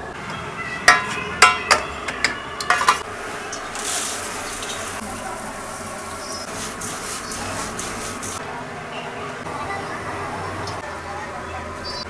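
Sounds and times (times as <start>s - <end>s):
steel pans clanking: 0.8s - 5.0s
cornflakes poured into steel bowl: 3.6s - 8.4s.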